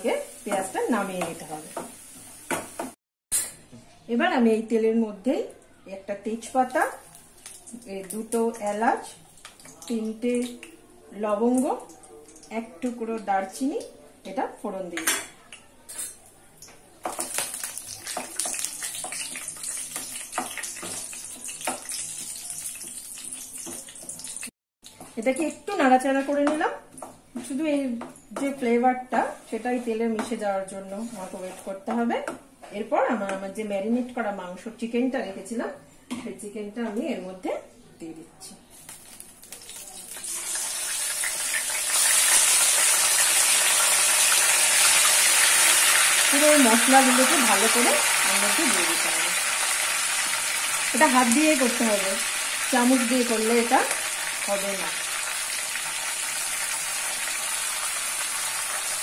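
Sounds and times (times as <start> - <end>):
spices sizzling in hot oil: 0.0 - 3.5, 6.4 - 10.7, 17.0 - 27.7, 38.7 - 59.0
spatula scraping a pan: 30.8 - 31.7.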